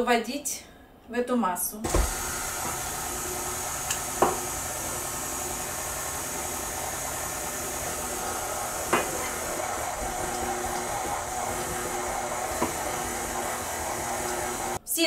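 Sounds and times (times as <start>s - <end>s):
stand mixer running: 1.9s - 14.8s.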